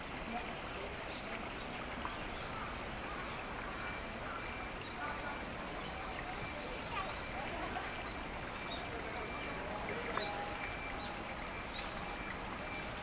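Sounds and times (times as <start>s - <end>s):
birds chirping: 0.0s - 13.0s
chatter of visitors: 0.0s - 13.0s.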